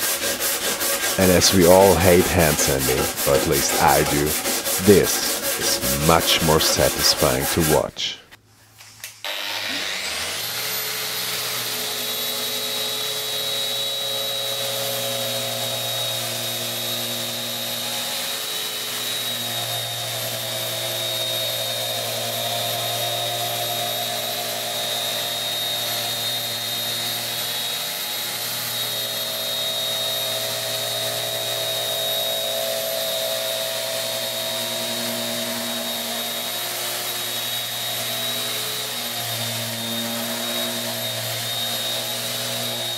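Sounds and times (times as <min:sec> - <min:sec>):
sanding paint off wood: 0:00.0 - 0:07.7.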